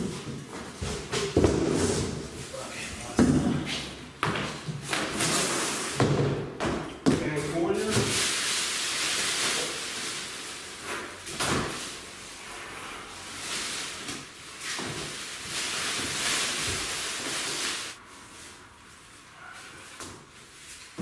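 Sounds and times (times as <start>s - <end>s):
plastic wrapping crinkling: 8.0s - 21.0s.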